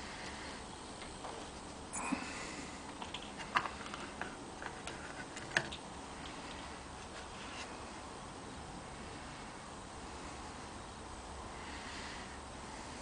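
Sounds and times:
plastic parts clicking and tapping: 0:02.9 - 0:05.8.

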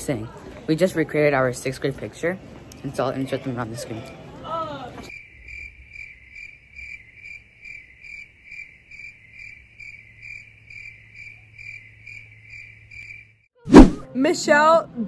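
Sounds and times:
cricket chirping: 0:05.1 - 0:13.5.

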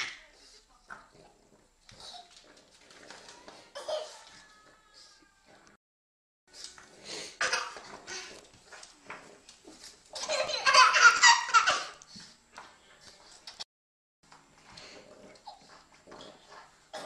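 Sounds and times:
baby laughing: 0:10.2 - 0:12.0.

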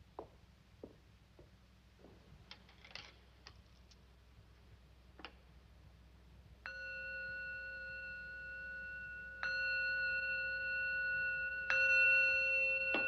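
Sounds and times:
bowl bell ringing: 0:06.6 - 0:13.0.

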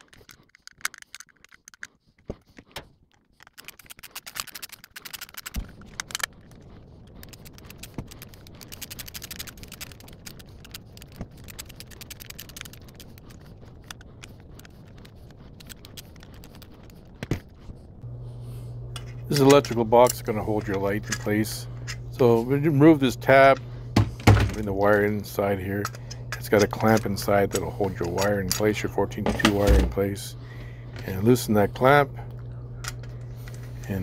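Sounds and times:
screwdriver clicking on metal screws: 0:00.0 - 0:06.3, 0:19.0 - 0:30.2
faint low hum: 0:00.0 - 0:34.0.

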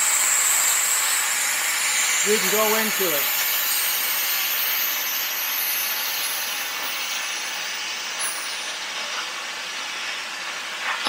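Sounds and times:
plasma cutter hissing: 0:00.0 - 0:08.2.

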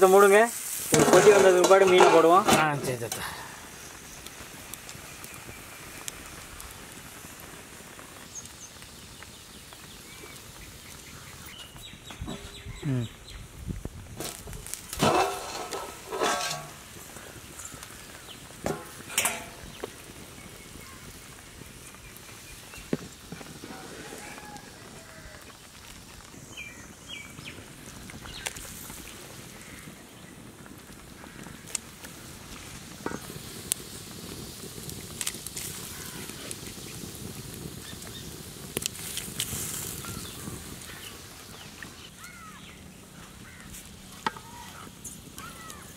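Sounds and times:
curry boiling with soft hiss: 0:00.0 - 0:45.9
steel lid clanking on pot: 0:00.9 - 0:03.2, 0:15.0 - 0:16.9, 0:18.7 - 0:19.7.

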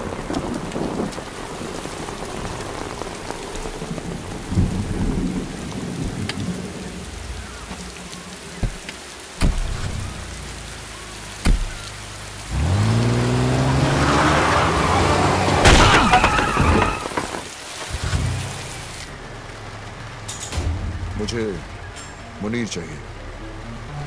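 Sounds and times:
heavy rain falling: 0:00.0 - 0:24.0
car engine starting and revving: 0:09.4 - 0:21.6
sharp knocks: 0:11.4 - 0:11.8.

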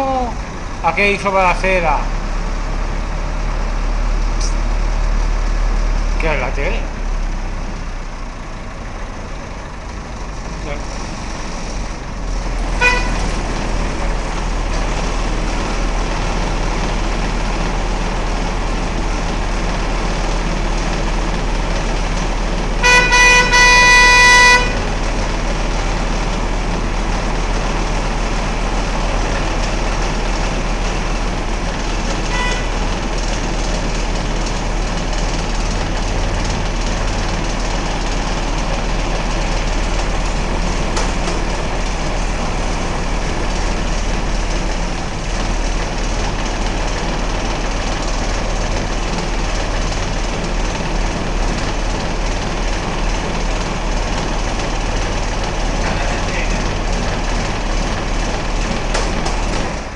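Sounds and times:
truck engine running: 0:00.0 - 0:59.9
vehicle horn: 0:12.7 - 0:13.4, 0:22.8 - 0:25.1, 0:32.3 - 0:32.9.

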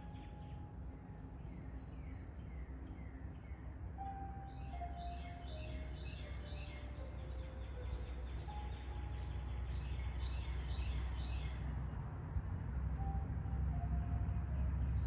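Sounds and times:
birds chirping: 0:00.0 - 0:12.0
low outdoor rumble: 0:00.0 - 0:15.0.

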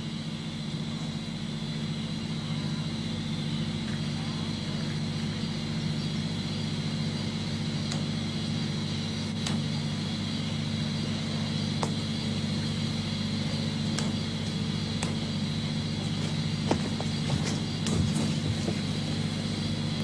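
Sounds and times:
faint clicks: 0:07.8 - 0:08.2, 0:13.5 - 0:19.0.

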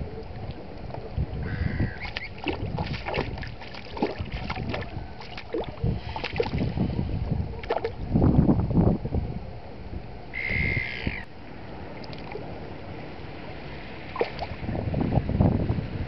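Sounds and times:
wind rumble on microphone: 0:00.0 - 0:16.0
shallow water splashing: 0:00.2 - 0:06.9, 0:07.5 - 0:08.0, 0:11.9 - 0:12.5, 0:14.0 - 0:14.7
bird call: 0:01.5 - 0:02.4, 0:10.3 - 0:11.3.

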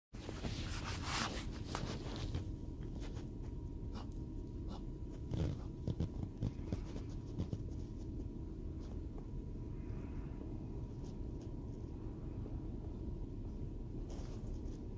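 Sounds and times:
rustling: 0:00.2 - 0:03.6, 0:14.0 - 0:14.9.

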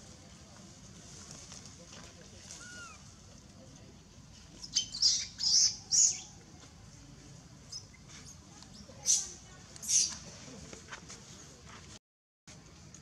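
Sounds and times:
young monkey screaming: 0:02.6 - 0:03.1, 0:04.7 - 0:06.3.

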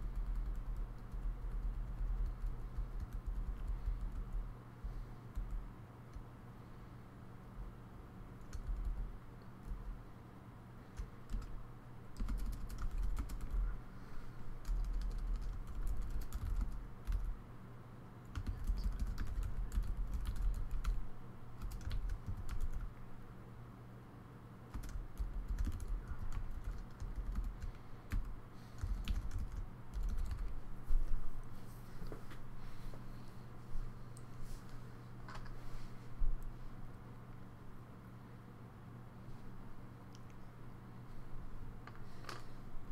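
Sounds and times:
typing on computer keyboard: 0:00.0 - 0:04.5, 0:08.4 - 0:09.9, 0:11.0 - 0:11.5, 0:12.2 - 0:13.6, 0:14.6 - 0:17.3, 0:18.3 - 0:21.0, 0:21.6 - 0:22.9, 0:24.7 - 0:30.6.

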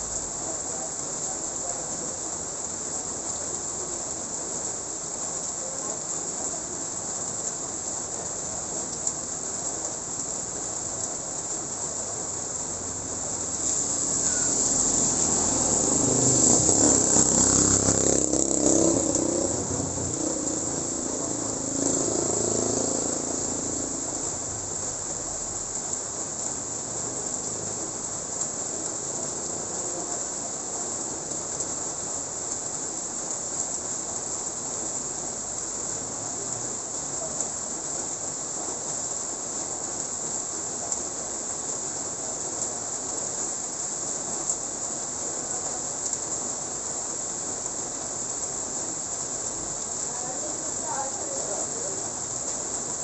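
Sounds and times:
steady high-pitched hiss: 0:00.0 - 0:53.0
motorcycle passing on wet road: 0:12.2 - 0:32.3, 0:47.3 - 0:53.0.

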